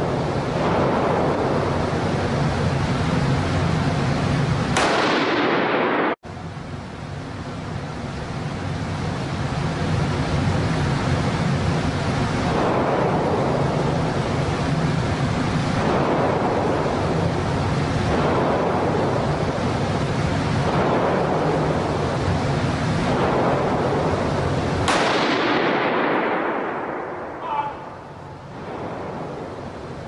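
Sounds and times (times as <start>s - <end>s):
rifle shots echoing indoors: 4.8s - 6.2s, 12.4s - 14.2s, 15.7s - 17.2s, 18.0s - 19.5s, 20.6s - 22.1s, 23.0s - 29.8s.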